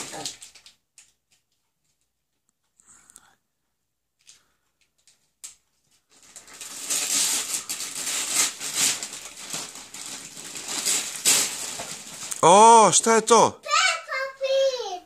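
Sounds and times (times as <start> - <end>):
wrapping paper crinkling and tearing: 0.0 - 1.2, 4.2 - 13.2.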